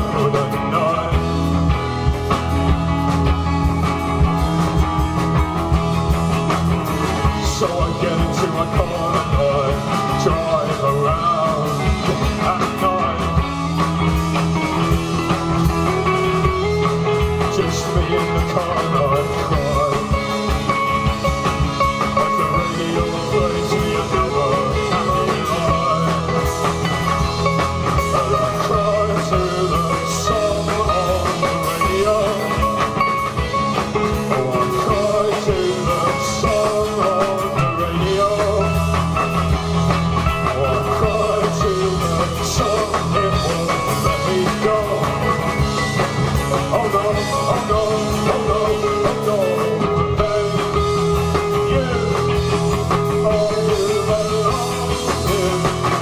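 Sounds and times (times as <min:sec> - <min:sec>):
drums: 0:00.0 - 0:56.0
sustained guitar lines: 0:00.0 - 0:56.0.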